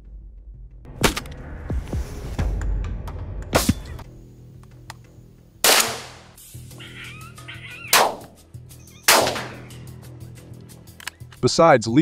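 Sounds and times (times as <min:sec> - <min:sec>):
gunshots with echo: 0:05.6 - 0:06.3, 0:07.9 - 0:08.3, 0:09.1 - 0:09.6
wavering animal cry: 0:06.7 - 0:09.9.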